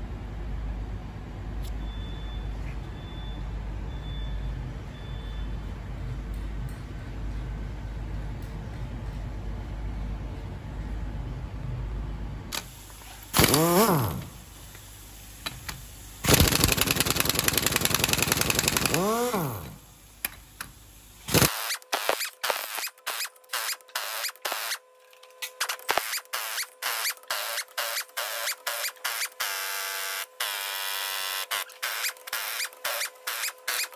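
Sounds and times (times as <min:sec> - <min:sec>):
impact wrench hammering: 0:13.4 - 0:14.3, 0:15.4 - 0:20.4
motor winding down whine: 0:13.4 - 0:14.4, 0:16.2 - 0:19.9, 0:21.3 - 0:24.8, 0:25.4 - 0:33.9.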